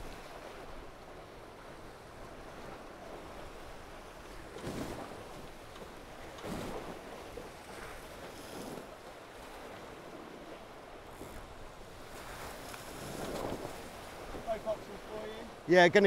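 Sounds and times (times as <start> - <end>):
rushing water: 0.0 - 16.0
water surges: 0.0 - 16.0
wind: 0.0 - 16.0.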